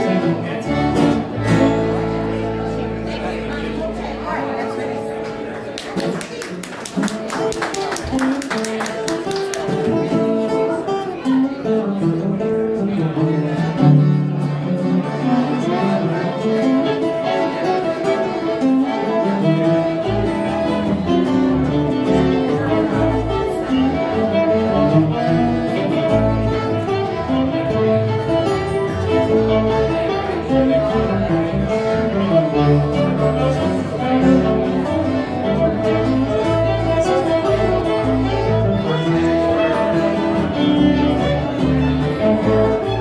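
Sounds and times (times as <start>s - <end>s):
acoustic guitar: 0.0s - 43.0s
fiddle: 0.0s - 43.0s
electric bass: 20.1s - 43.0s.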